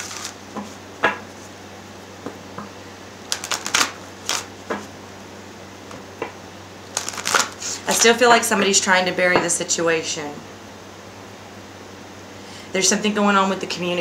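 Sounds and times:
cards being shuffled: 0:00.0 - 0:00.8, 0:03.3 - 0:04.8, 0:06.9 - 0:08.1.

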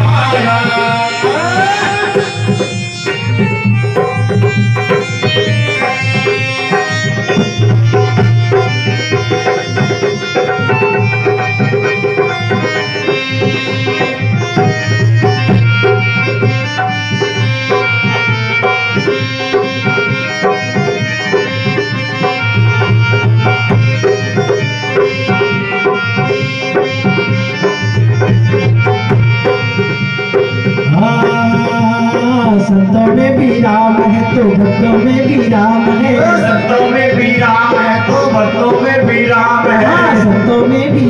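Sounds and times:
held ornamented melody: 0:00.0 - 0:31.2
hand drum steady rhythm: 0:00.0 - 0:41.0.

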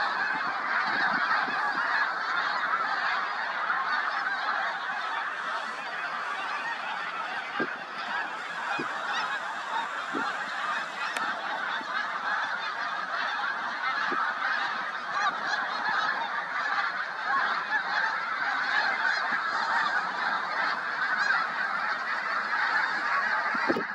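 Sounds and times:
geese honking in flight: 0:00.0 - 0:23.9.

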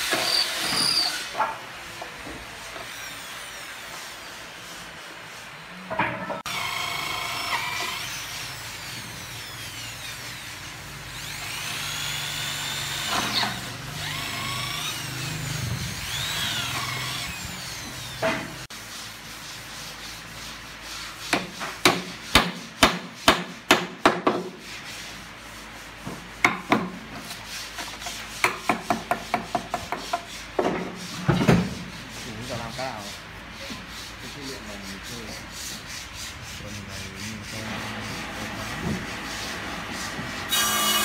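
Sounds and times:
electric drill boring into wood: 0:06.5 - 0:18.2, 0:40.6 - 0:41.0.

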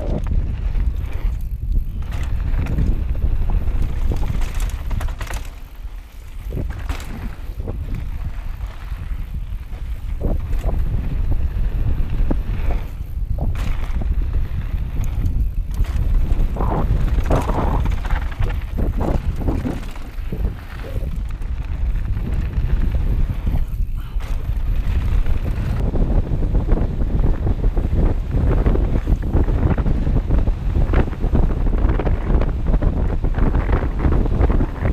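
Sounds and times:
bike tyres crunching on gravel: 0:00.0 - 0:27.1
bike rattling over bumps: 0:00.0 - 0:34.9
wind buffeting microphone: 0:00.0 - 0:34.9.

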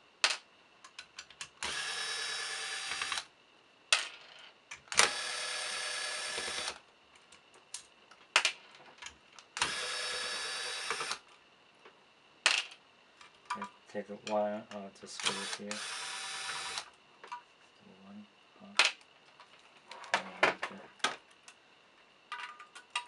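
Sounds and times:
electric screwdriver whirring: 0:01.6 - 0:03.3, 0:05.0 - 0:06.8, 0:09.6 - 0:11.2, 0:15.2 - 0:16.9.

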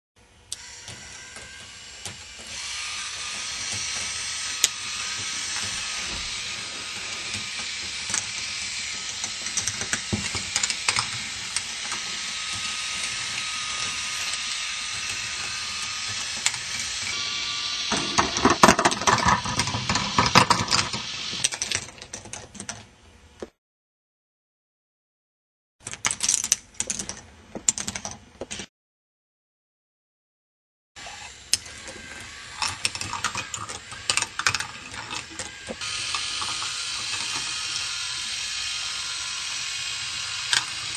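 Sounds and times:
motor whirring and ticking: 0:00.5 - 0:21.5, 0:31.0 - 0:40.9
balls clattering on plastic track: 0:18.0 - 0:22.8, 0:32.6 - 0:37.8.

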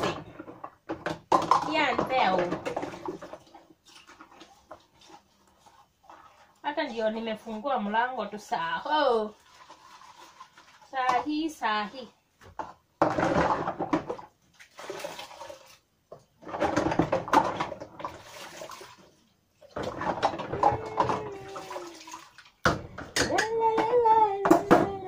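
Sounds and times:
plastic cups and utensils knocking: 0:00.0 - 0:03.5, 0:12.4 - 0:14.3, 0:16.4 - 0:18.2, 0:19.7 - 0:21.6, 0:22.6 - 0:25.0
water splashing in basin: 0:01.3 - 0:07.6, 0:13.2 - 0:25.0.

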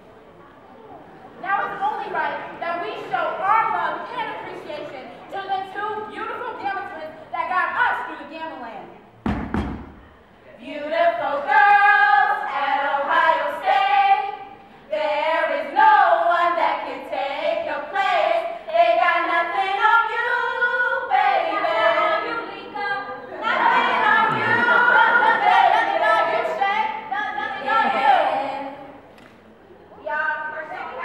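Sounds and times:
women singing a cappella: 0:10.5 - 0:29.1.

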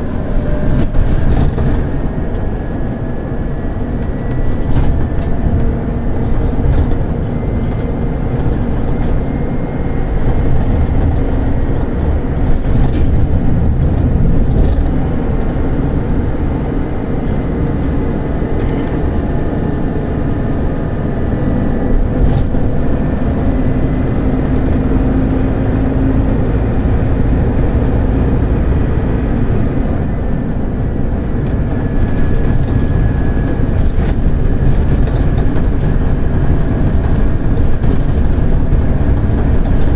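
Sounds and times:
rising whine: 0:00.0 - 0:39.8
bus diesel engine droning: 0:00.0 - 0:39.9
clicks and knocks from bus body: 0:00.1 - 0:02.5, 0:03.9 - 0:15.6, 0:21.5 - 0:23.3, 0:30.4 - 0:39.9.

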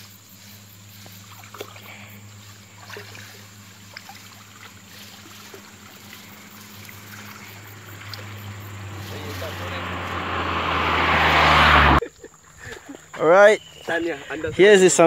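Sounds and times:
steady low hum: 0:00.0 - 0:10.8
water splashing and sloshing: 0:00.9 - 0:11.6.

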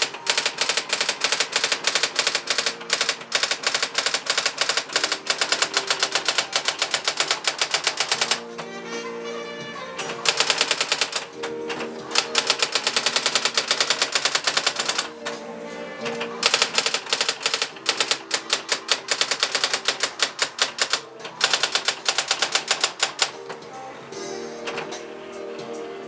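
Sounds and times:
typewriter striking rapidly: 0:00.0 - 0:08.6, 0:10.0 - 0:23.6
background music: 0:00.0 - 0:26.0.

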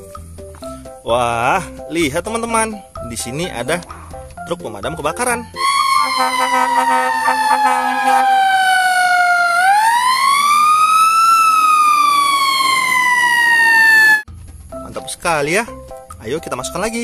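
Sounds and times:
steady horn tone: 0:05.6 - 0:09.0
fire truck siren wailing: 0:05.6 - 0:14.3.

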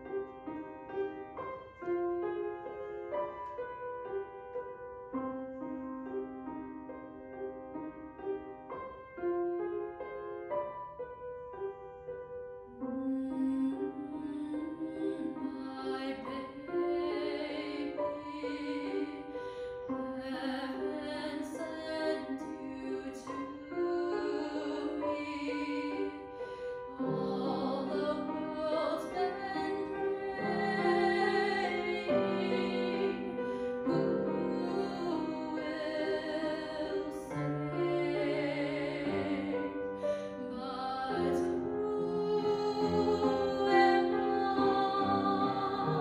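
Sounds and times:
grand piano: 0:00.0 - 0:46.0
woman singing with vibrato: 0:12.9 - 0:19.4, 0:20.1 - 0:46.0.

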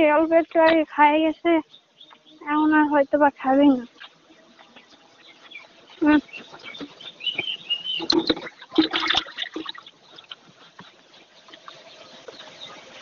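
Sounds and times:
farmyard birds chirping: 0:00.0 - 0:13.0
person calling: 0:06.0 - 0:06.3.

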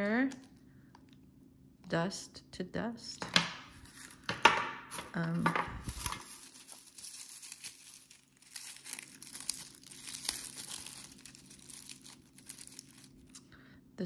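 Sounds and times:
paper crinkling and rustling: 0:03.7 - 0:13.5.

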